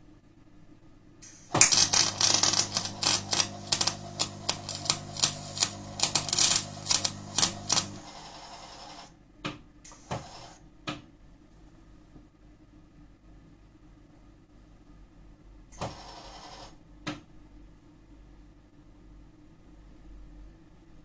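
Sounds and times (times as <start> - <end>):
welding arc crackling and popping: 1.5 - 8.0
welder machine humming: 1.5 - 9.1
person speaking: 1.6 - 8.0.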